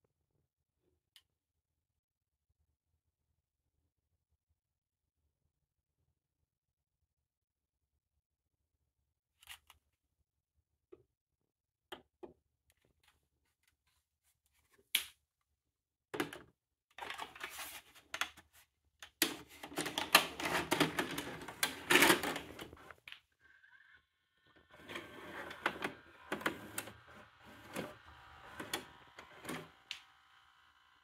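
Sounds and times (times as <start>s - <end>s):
tape deck clicking and clattering: 19.7s - 22.8s, 24.9s - 30.1s.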